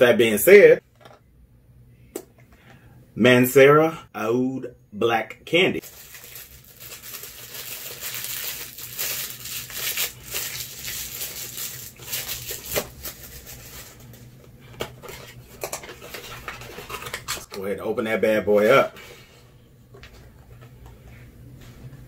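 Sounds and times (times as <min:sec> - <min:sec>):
crinkly wrapping being torn: 0:05.8 - 0:14.2.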